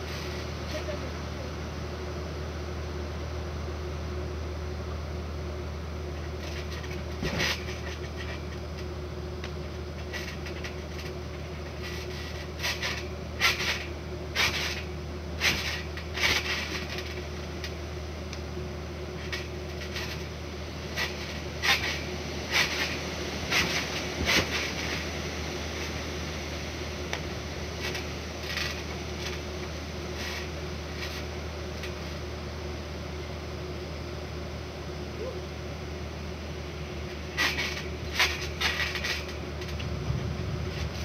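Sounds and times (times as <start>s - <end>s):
trampoline landing thumps: 6.2s - 8.7s, 9.4s - 17.8s, 19.0s - 25.2s, 27.1s - 32.1s, 37.0s - 41.0s
low rumble: 39.8s - 41.0s.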